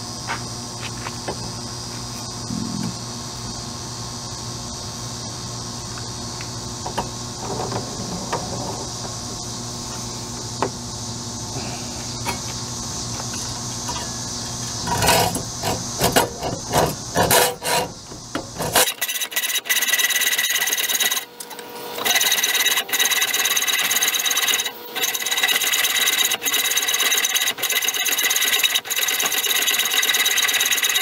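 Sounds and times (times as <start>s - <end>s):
steady background noise: 0.0s - 19.6s
hacksaw sawing metal: 14.8s - 18.0s, 18.6s - 21.3s, 22.0s - 31.0s.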